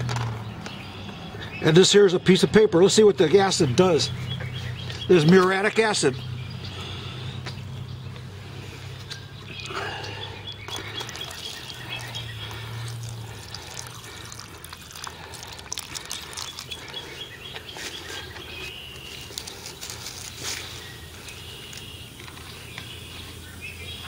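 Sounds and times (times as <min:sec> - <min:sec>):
bird chirping: 0:00.2 - 0:24.0
liquid pouring and splashing: 0:10.7 - 0:17.2
acid fizzing on metal: 0:10.8 - 0:17.2.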